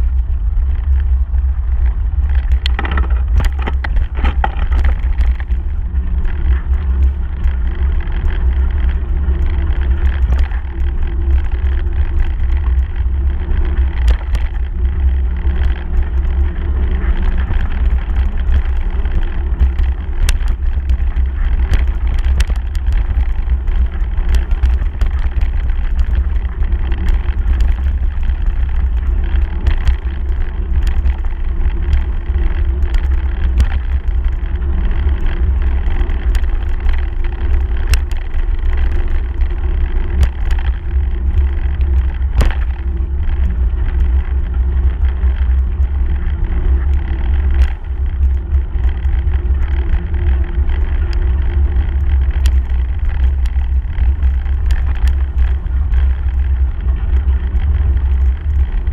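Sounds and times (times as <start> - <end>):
wind on microphone: 0.0 - 58.9
bike clicks and knocks: 2.2 - 44.2
tyres on gravel: 2.4 - 5.8.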